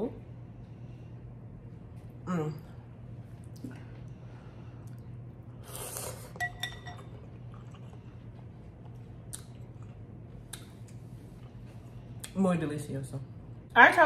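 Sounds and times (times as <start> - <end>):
low steady hum: 0.0 - 14.0
person slurping noodles: 5.6 - 6.4
chopsticks clinking on glass bowl: 6.4 - 7.2.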